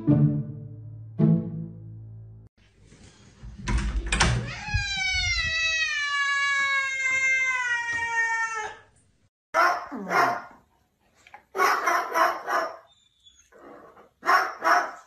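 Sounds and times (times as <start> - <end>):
cat yowling: 4.5 - 8.9.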